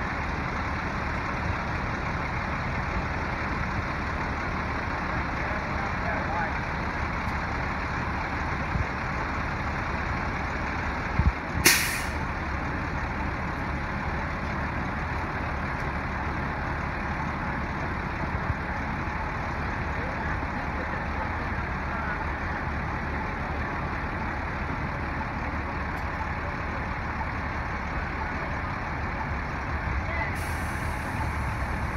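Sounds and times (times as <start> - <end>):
diesel engine running: 0.0 - 31.9
air hiss: 11.6 - 12.2.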